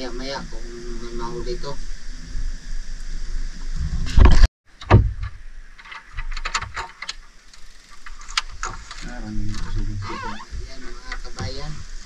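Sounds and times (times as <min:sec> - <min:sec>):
loud bump: 0:04.0 - 0:05.4
thump: 0:04.1 - 0:05.4.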